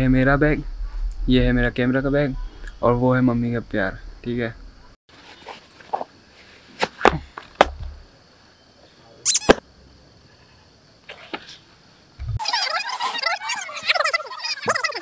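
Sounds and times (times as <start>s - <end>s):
shoe scuffs and knocks: 6.8s - 8.0s
high squeak: 9.3s - 9.6s.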